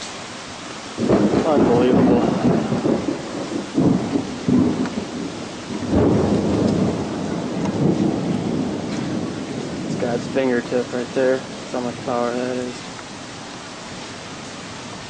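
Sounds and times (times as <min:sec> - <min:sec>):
strong wind gusting on microphone: 0:01.0 - 0:15.0.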